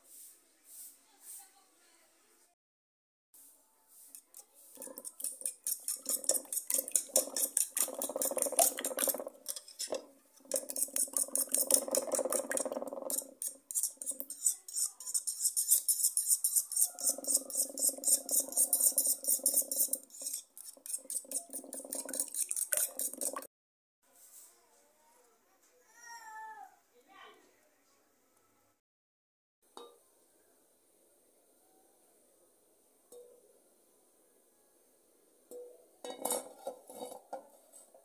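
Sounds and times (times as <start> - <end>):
fork whisking eggs in a bowl: 4.1 - 23.5.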